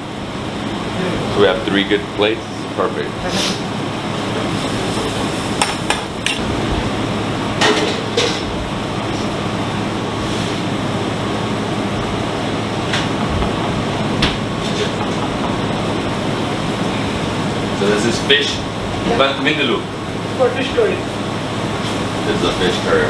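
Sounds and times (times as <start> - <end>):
kitchen noise: 7.6 - 8.6.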